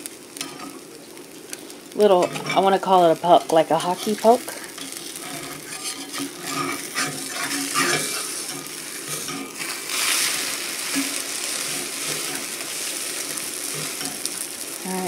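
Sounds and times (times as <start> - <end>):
eggs sizzling in a skillet: 0.0 - 15.0
metal spatula pressing against pan: 4.8 - 12.6.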